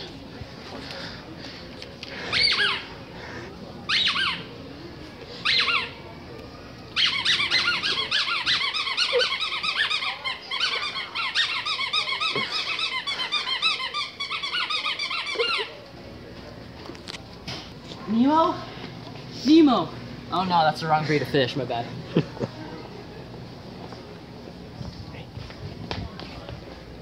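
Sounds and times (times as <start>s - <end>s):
squeaky dog toy squeaking: 3.9s - 4.5s, 5.4s - 6.0s, 7.0s - 15.7s.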